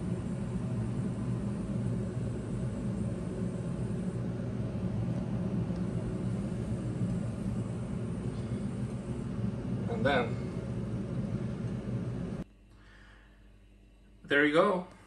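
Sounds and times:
running machinery rumble: 0:00.0 - 0:15.0.

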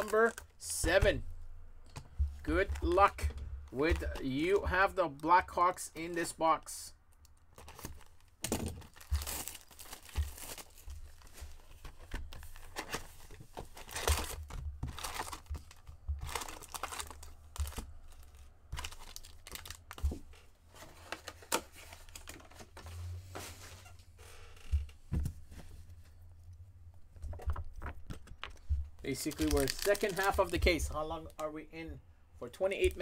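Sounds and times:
plastic wrapping tearing and crinkling: 0:07.5 - 0:11.4, 0:13.7 - 0:20.1, 0:29.1 - 0:31.4.

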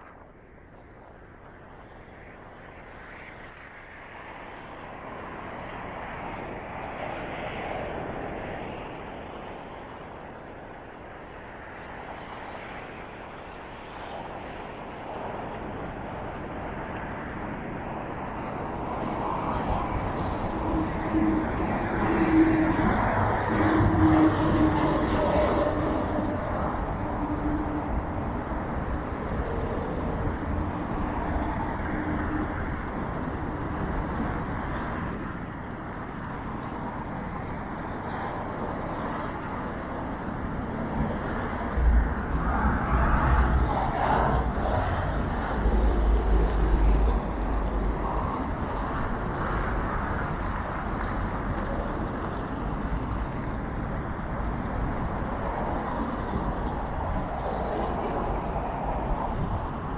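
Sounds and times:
car traffic: 0:15.7 - 0:59.9.

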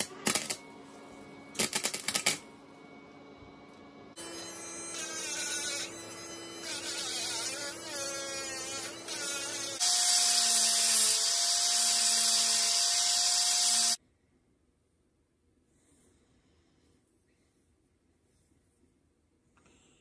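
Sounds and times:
angle grinder whining: 0:04.2 - 0:14.0.

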